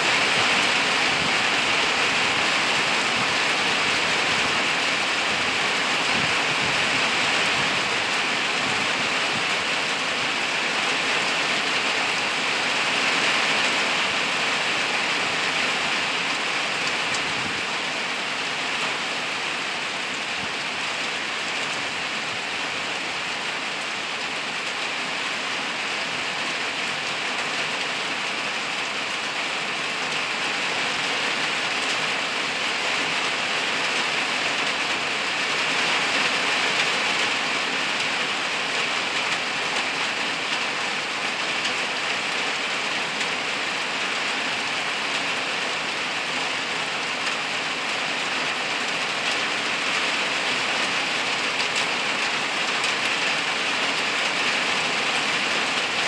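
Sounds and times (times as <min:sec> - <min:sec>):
rain falling on leaves: 0:00.0 - 0:56.0.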